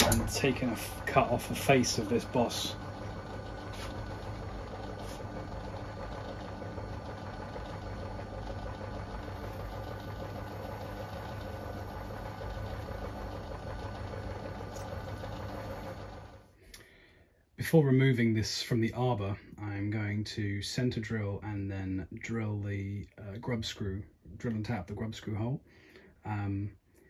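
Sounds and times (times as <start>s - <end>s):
lathe motor and gear hum: 0.0s - 16.4s.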